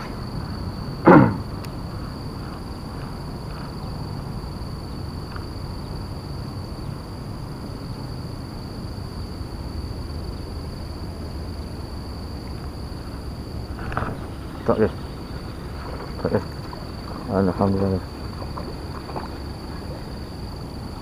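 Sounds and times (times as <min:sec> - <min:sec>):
insect chirring: 0:00.0 - 0:21.0
low outdoor rumble: 0:00.0 - 0:21.0
faint ticks: 0:05.2 - 0:05.5.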